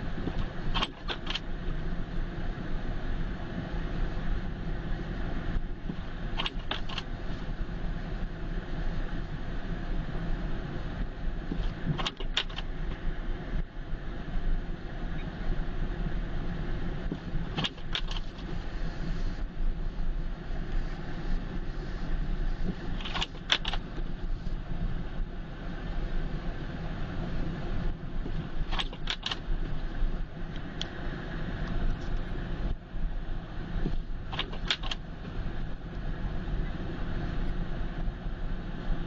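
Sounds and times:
car engine and tyres rumbling: 0:00.0 - 0:39.0
sharp clicks: 0:34.3 - 0:35.0.

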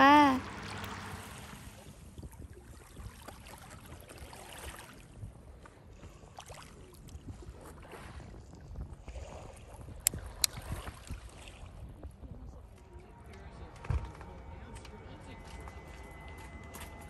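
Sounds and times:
small waves lapping on rocks: 0:00.4 - 0:12.9
wind rumble on microphone: 0:00.4 - 0:14.7.

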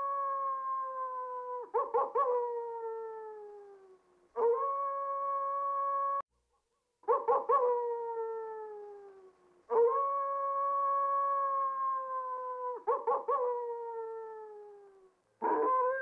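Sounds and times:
coyote howling and yipping: 0:15.4 - 0:16.0.

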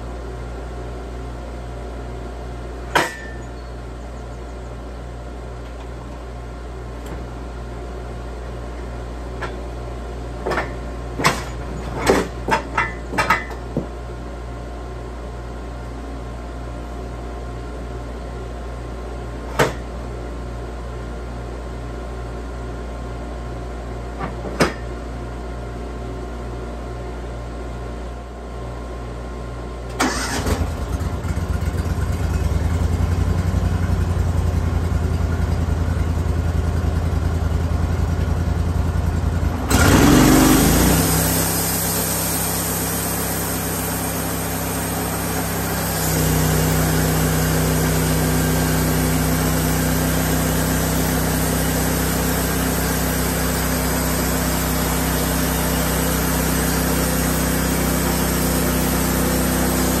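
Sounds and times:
sawmill motor drone: 0:38.2 - 1:00.0.

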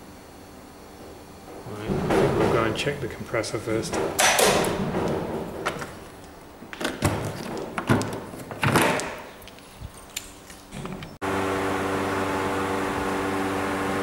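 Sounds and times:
steady machine hum: 0:00.0 - 0:09.6, 0:10.3 - 0:14.0
metal panel door knocks and clicks: 0:01.8 - 0:03.0, 0:03.8 - 0:06.0
keys jangling: 0:09.4 - 0:10.7.

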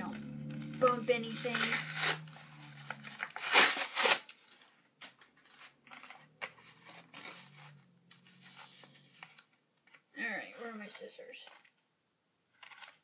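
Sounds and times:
plastic packaging rustling: 0:00.6 - 0:10.1
plastic clicks and crinkles: 0:04.2 - 0:10.1, 0:11.4 - 0:11.9, 0:12.5 - 0:13.0.

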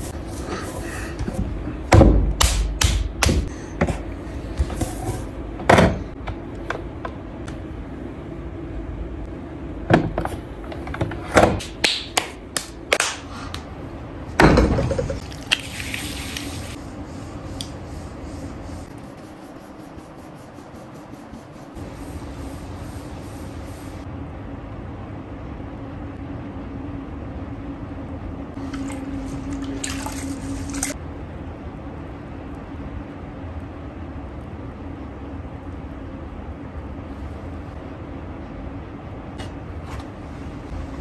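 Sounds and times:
hand slapping clay: 0:02.3 - 0:03.5
pottery wheel humming: 0:12.4 - 0:41.0.

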